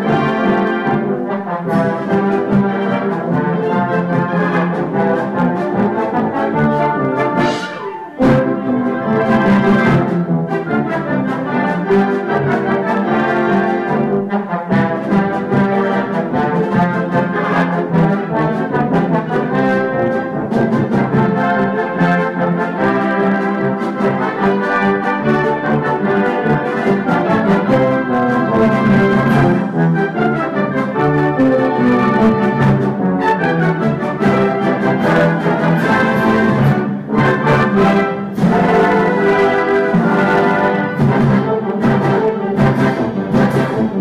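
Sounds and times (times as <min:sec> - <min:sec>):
concert band playing brass chords: 0:00.0 - 0:44.0.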